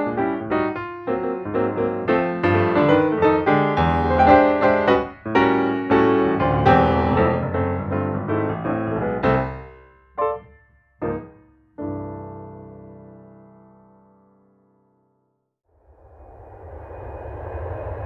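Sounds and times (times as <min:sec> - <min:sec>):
piano music: 0:00.0 - 0:15.2.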